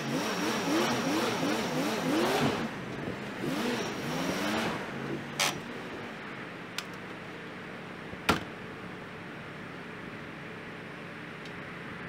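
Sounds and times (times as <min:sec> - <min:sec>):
truck engine revving: 0:00.0 - 0:05.6.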